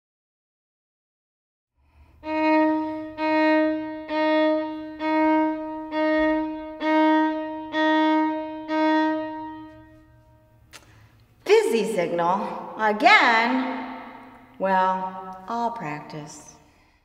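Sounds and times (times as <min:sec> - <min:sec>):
violin bowing single note: 0:02.2 - 0:10.6.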